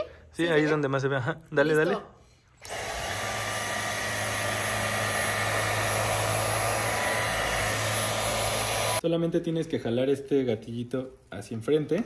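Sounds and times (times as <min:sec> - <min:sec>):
vacuum cleaner running: 0:02.6 - 0:09.0.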